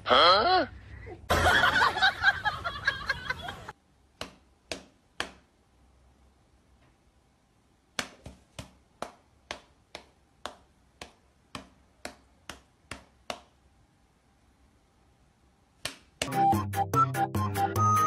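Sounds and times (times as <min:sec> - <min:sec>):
sharp claps: 0:15.8 - 0:16.4
music: 0:16.3 - 0:18.0.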